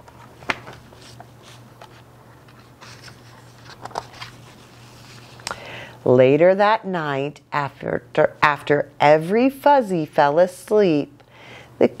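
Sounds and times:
book pages rustling: 0.0s - 5.5s
low steady hum: 0.0s - 12.0s.

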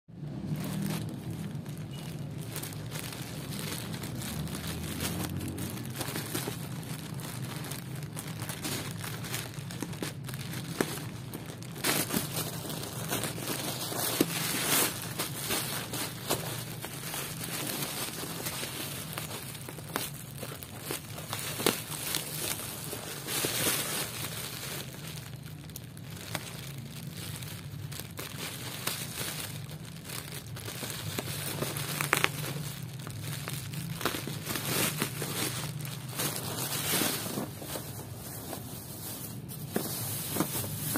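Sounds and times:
plastic packaging crinkling: 0.2s - 40.9s.

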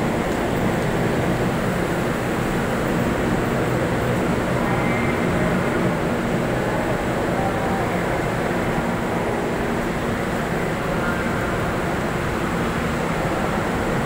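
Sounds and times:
crowd noise: 0.0s - 14.0s
railway noise: 0.0s - 14.0s.

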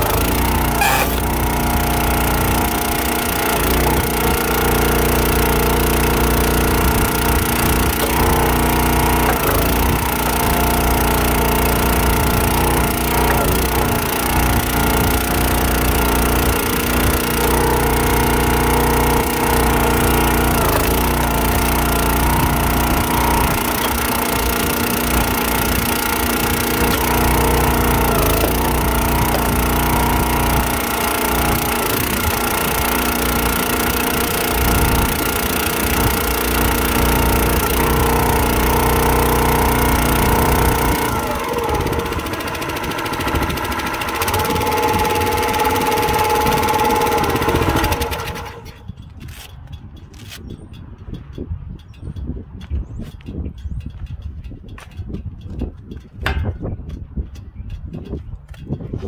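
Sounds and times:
small gas engine running: 0.0s - 49.5s.

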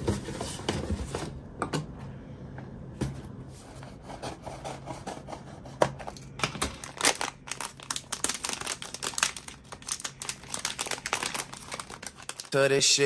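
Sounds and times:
packaging being torn open: 6.7s - 12.6s.

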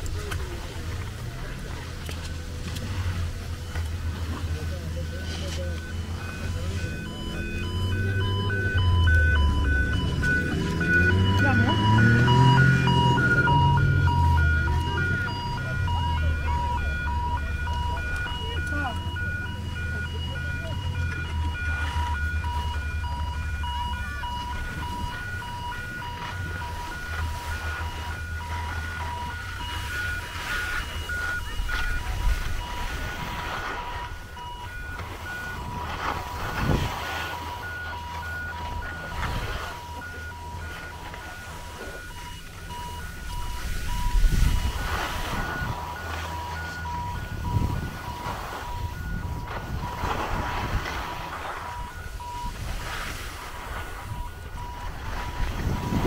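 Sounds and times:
continuous low rumble: 0.0s - 56.0s
two-tone electronic warning beeps: 1.4s - 56.0s
skis scraping on snow: 24.4s - 34.4s, 35.0s - 37.6s, 43.2s - 56.0s.

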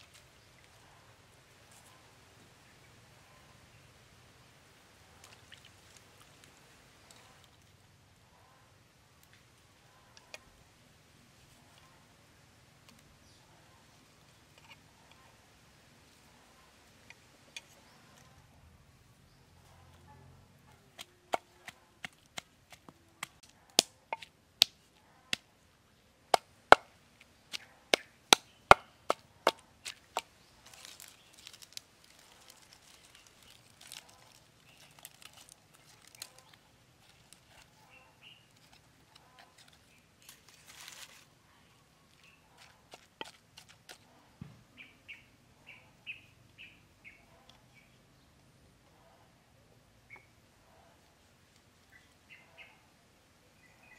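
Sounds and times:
leaf wrapping crackling: 0.0s - 2.0s, 26.3s - 44.1s.

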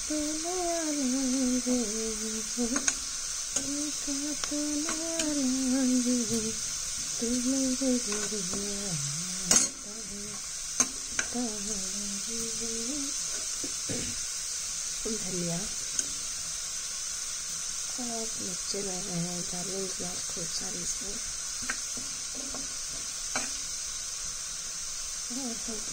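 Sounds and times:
person humming: 0.0s - 3.0s, 3.6s - 10.4s, 11.2s - 13.3s, 13.9s - 14.2s
onions sizzling in oil: 0.0s - 25.9s.

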